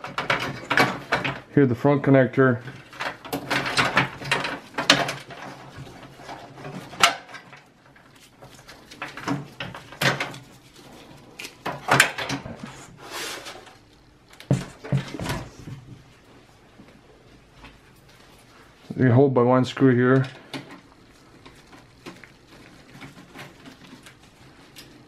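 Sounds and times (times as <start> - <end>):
cables scraping against sheet metal: 2.5 - 13.8, 19.9 - 25.0.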